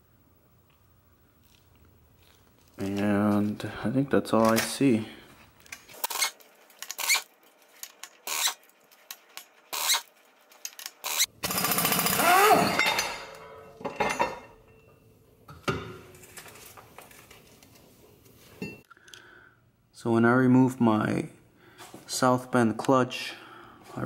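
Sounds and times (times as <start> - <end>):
impact wrench rattling: 10.7 - 13.2.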